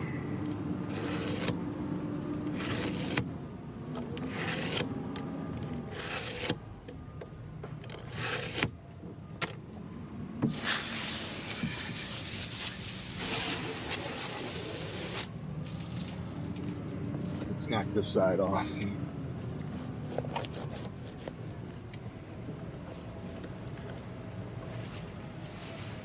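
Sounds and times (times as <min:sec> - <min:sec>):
knife cutting and scraping fish: 0:00.8 - 0:01.6, 0:02.5 - 0:03.3, 0:04.2 - 0:05.0, 0:05.7 - 0:06.6, 0:07.9 - 0:08.7, 0:19.6 - 0:21.5.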